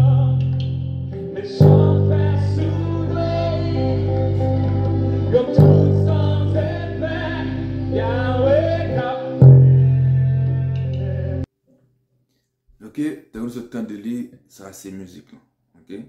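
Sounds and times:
electric bass low notes: 0:00.0 - 0:11.5
gospel singing: 0:00.0 - 0:11.5.

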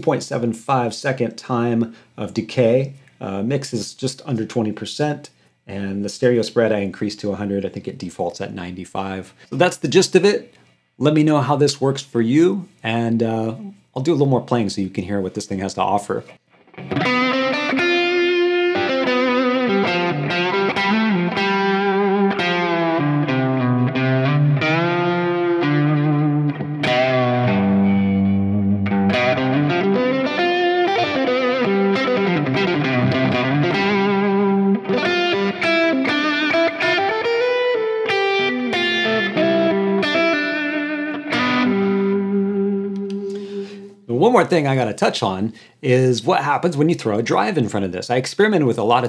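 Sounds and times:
electric guitar with delay and reverb: 0:16.5 - 0:43.9.

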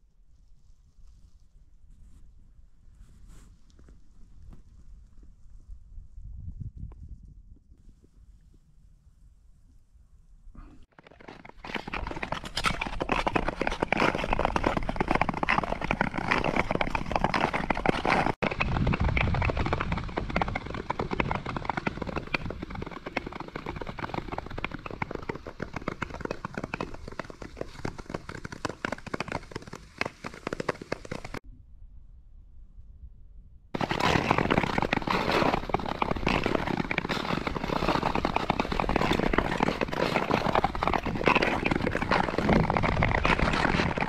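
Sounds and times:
skate blades scraping on ice: 0:10.9 - 0:31.4, 0:33.8 - 0:44.0.

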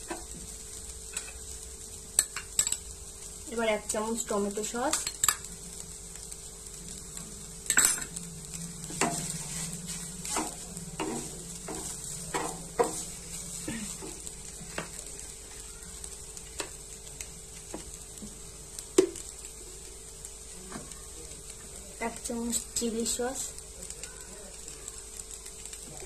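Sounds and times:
noodles sizzling: 0:00.0 - 0:26.0
wooden spatula scraping a pan: 0:08.9 - 0:15.6.

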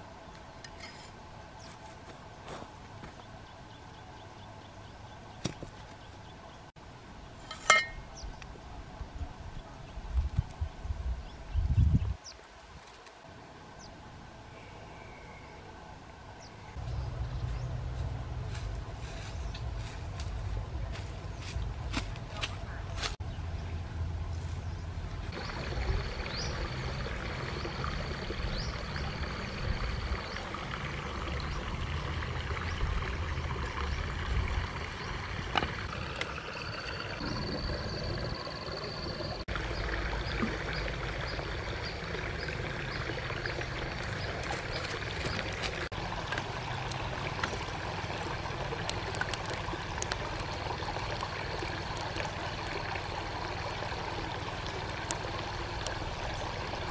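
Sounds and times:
stream running water: 0:00.0 - 0:11.5, 0:12.2 - 0:56.9.

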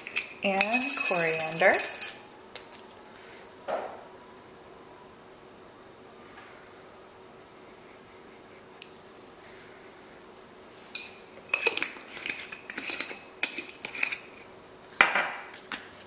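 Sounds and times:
glass jars clinking on stone: 0:00.0 - 0:02.3.

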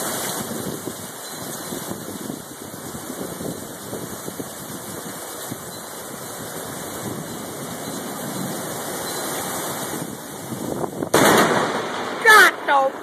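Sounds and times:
steady rain: 0:00.0 - 0:13.0
loud thunder crack: 0:11.0 - 0:13.0.

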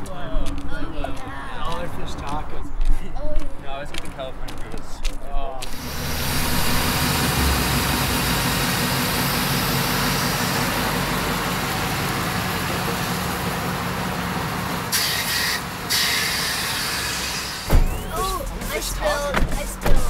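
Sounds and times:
broad rushing noise: 0:05.6 - 0:11.0
vehicle engine idling: 0:05.6 - 0:20.0.

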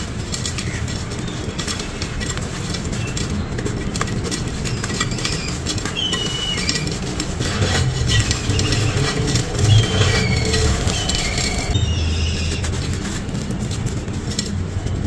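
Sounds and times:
gritty crunching by hand: 0:00.0 - 0:15.0
low rumble: 0:07.2 - 0:14.0.

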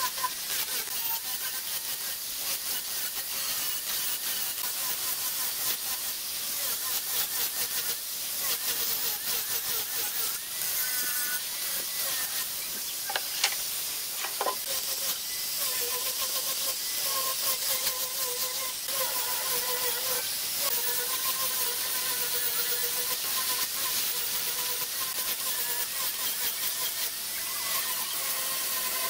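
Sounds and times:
angle grinder sanding wood: 0:00.0 - 0:29.0.

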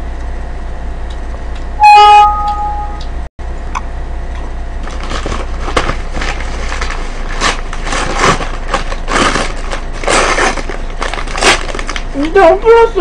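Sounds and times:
paper bag crinkling: 0:04.8 - 0:12.6.

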